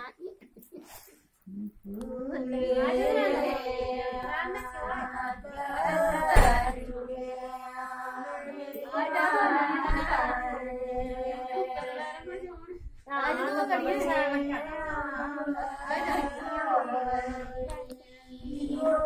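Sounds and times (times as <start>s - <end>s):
women singing: 1.5s - 19.0s.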